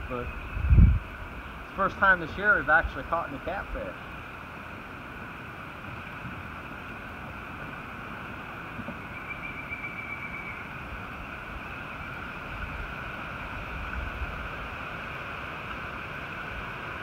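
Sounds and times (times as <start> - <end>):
wind rumble on microphone: 0.0 - 4.0, 5.8 - 17.0
high-pitched background hiss: 0.0 - 17.0.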